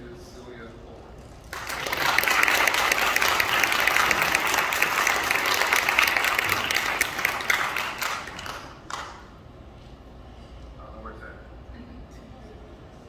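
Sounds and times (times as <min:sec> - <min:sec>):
audience applauding: 0:01.5 - 0:09.3.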